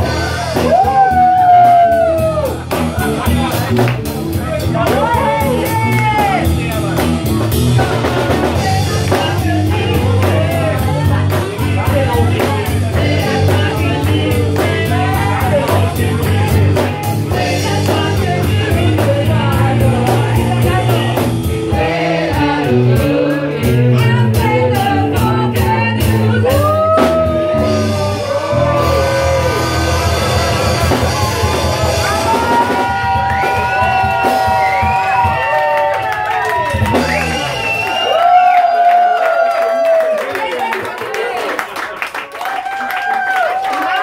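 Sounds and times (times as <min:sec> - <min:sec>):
steady drumbeat: 0:00.0 - 0:38.8
live rock band playing: 0:00.0 - 0:38.9
woman singing: 0:07.8 - 0:28.0.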